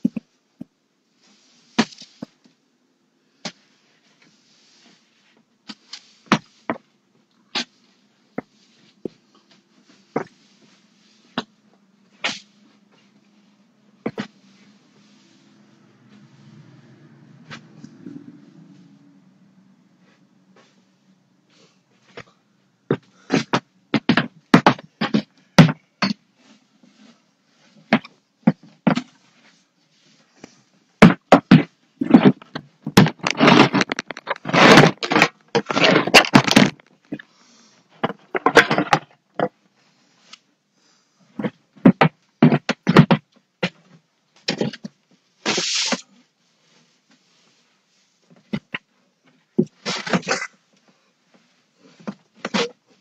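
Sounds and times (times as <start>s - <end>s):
broom bristles scraping floor: 3.6s - 6.9s, 7.6s - 19.1s, 22.9s - 36.9s, 45.4s - 48.1s
sharp knocks and bumps: 22.9s - 26.2s, 31.0s - 36.9s, 41.4s - 43.9s.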